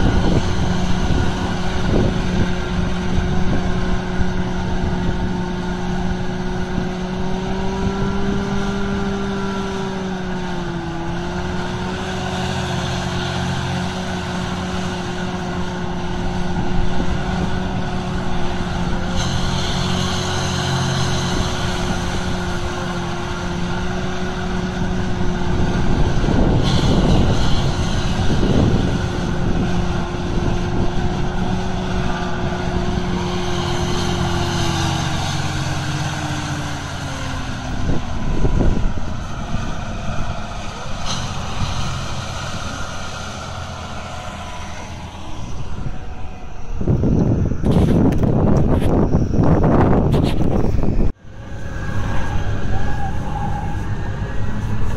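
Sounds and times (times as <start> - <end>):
tractor diesel engine running hard: 0.0 - 54.9.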